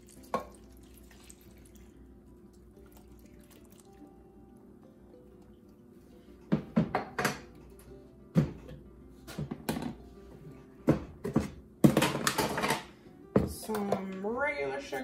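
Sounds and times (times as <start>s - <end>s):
soft background music: 0.0s - 15.0s
kitchen containers clattering: 10.9s - 14.3s.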